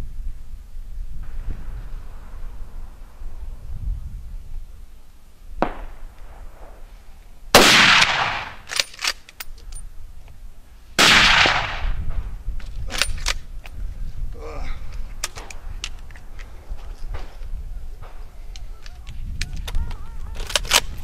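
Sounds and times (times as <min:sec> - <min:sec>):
distant gunshot: 0:05.6 - 0:06.8, 0:07.6 - 0:08.7, 0:11.0 - 0:12.1
loud gunshots with echo: 0:07.6 - 0:08.6, 0:11.0 - 0:12.0.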